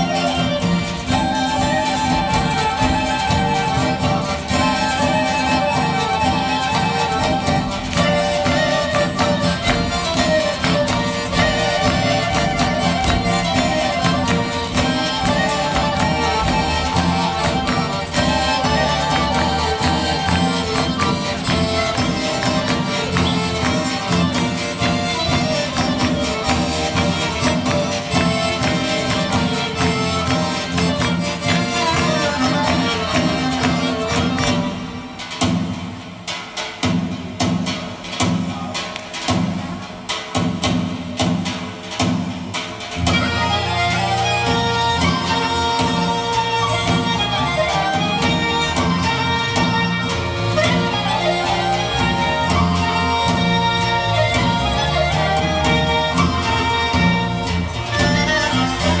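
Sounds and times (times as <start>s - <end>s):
folk dance music: 0.0s - 59.0s.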